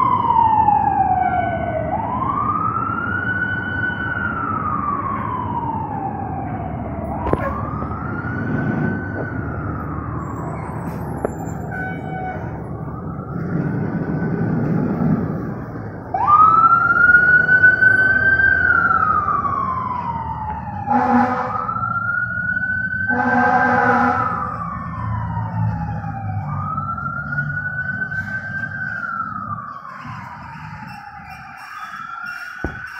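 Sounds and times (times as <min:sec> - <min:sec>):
diesel engine rumbling: 0:00.0 - 0:32.9
fire engine siren wailing: 0:00.0 - 0:32.9
truck horn blasts: 0:20.9 - 0:21.6, 0:23.1 - 0:24.4.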